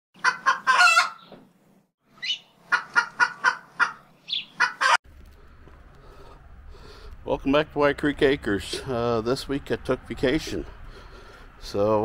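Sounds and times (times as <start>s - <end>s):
poultry clucking: 0.2s - 1.4s, 2.2s - 5.0s.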